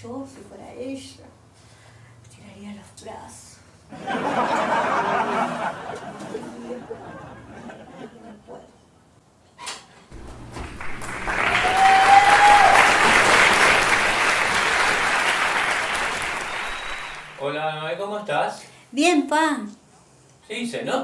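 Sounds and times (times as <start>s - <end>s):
studio audience applause: 10.2s - 17.6s
person whistling: 16.4s - 17.4s.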